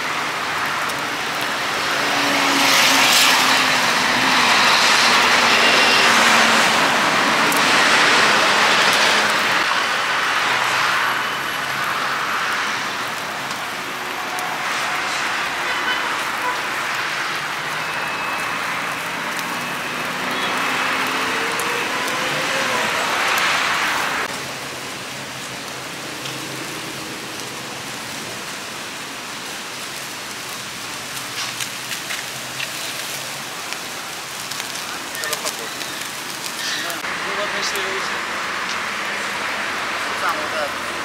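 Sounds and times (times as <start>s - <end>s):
fish sizzling on grill: 0.0s - 41.0s
faint crackles: 29.4s - 38.9s.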